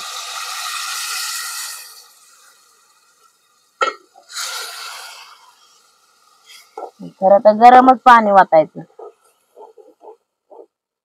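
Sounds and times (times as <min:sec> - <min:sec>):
water sizzling in hot pan: 0:00.0 - 0:06.8.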